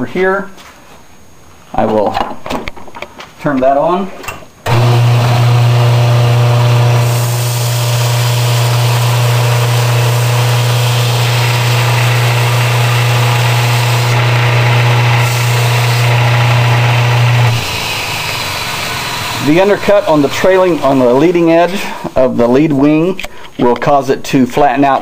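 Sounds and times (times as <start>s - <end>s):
electric belt sander motor hum: 4.7s - 20.9s
wood sanding hiss: 6.8s - 22.2s.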